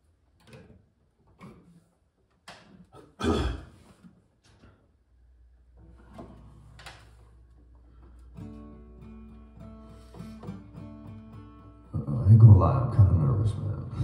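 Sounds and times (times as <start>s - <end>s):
plucked guitar notes: 5.8s - 14.0s.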